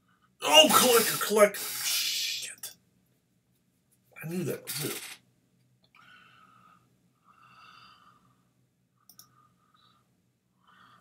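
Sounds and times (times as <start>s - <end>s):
computer mouse click: 9.1s - 9.3s.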